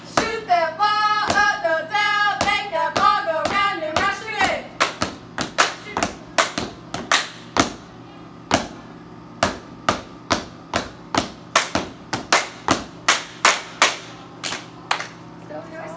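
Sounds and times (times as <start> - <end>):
hand claps in hallway: 4.8 - 7.4, 10.4 - 15.2.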